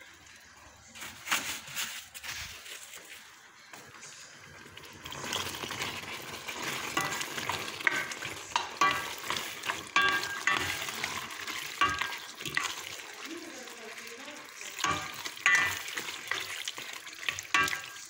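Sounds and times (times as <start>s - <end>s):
thick sauce bubbling and sizzling: 3.8s - 18.0s.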